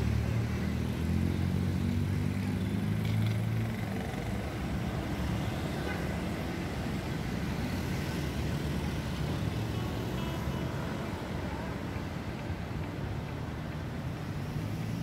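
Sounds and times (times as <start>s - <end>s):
busy street hum: 0.0s - 15.0s.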